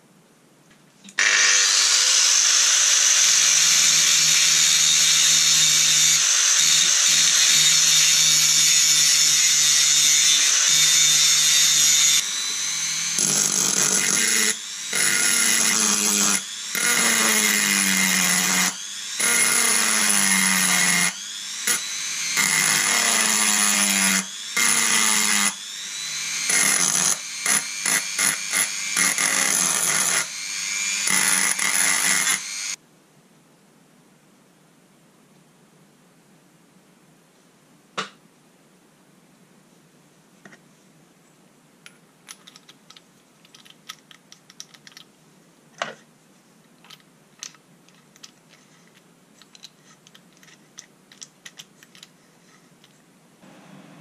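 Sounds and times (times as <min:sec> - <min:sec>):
angle grinder grinding steel: 0:01.2 - 0:32.8
rotary tool whining: 0:01.2 - 0:32.8.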